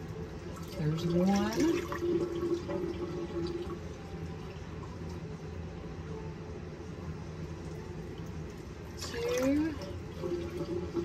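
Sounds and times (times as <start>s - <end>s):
kitchen tap running: 0.0s - 5.2s, 8.2s - 11.0s.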